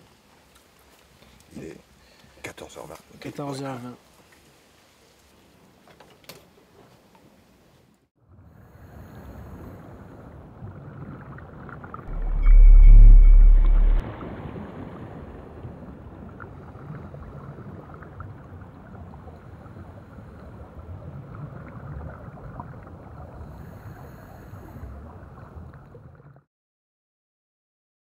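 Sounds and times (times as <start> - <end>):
low rushing noise: 12.1 - 14.2.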